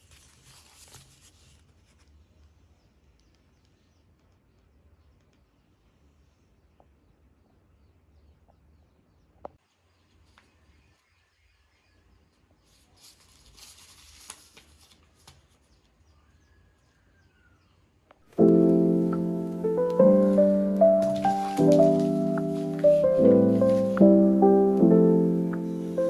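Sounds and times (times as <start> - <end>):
paper wrapper crackling: 0.0 - 2.1, 13.0 - 15.6, 18.5 - 26.0
piano music: 18.3 - 26.0.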